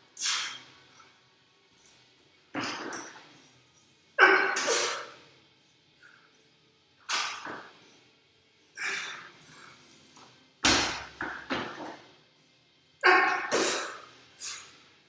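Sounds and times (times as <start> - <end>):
barbell thudding on rubber floor: 10.6 - 11.9.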